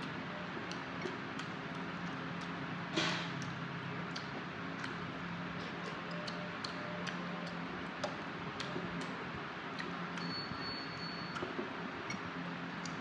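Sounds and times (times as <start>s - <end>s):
low steady hum: 0.0s - 13.0s
wet chewing mouth clicks: 0.6s - 2.6s, 3.4s - 11.5s.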